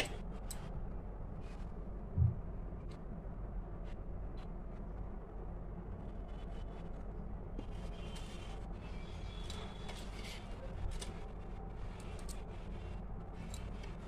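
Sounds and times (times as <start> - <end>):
low background rumble: 0.2 - 9.5.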